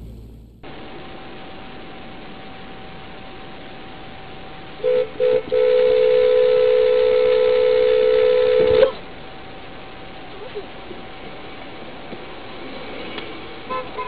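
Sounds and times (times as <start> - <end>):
road noise hiss: 0.0 - 14.0
car horn honking: 4.8 - 9.0, 13.7 - 14.0.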